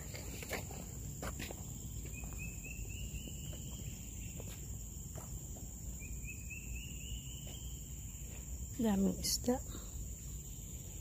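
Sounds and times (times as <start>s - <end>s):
rising chirps: 1.8s - 5.0s, 5.8s - 8.5s.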